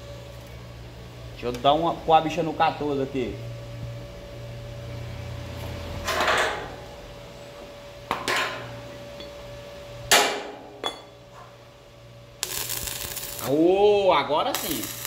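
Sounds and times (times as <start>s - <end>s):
electrical hum: 0.0s - 15.0s
arc welder crackling: 12.3s - 15.0s.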